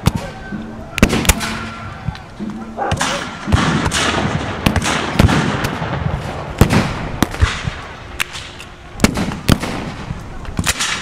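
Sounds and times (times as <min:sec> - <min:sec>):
rifle shots with echo: 0:02.8 - 0:11.0.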